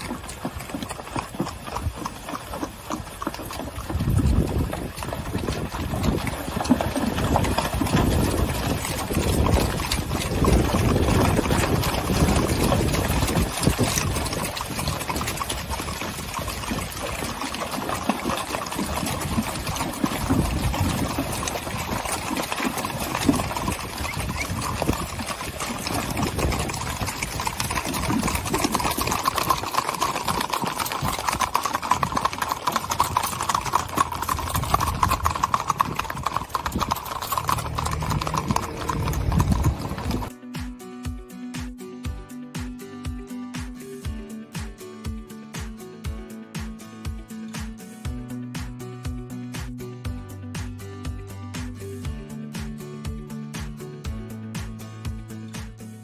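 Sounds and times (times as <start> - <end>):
hooves clip-clopping on pavement: 0.0 - 40.3, 43.6 - 56.0
hooves thudding: 0.0 - 40.3
horses splashing through stream: 0.0 - 40.3.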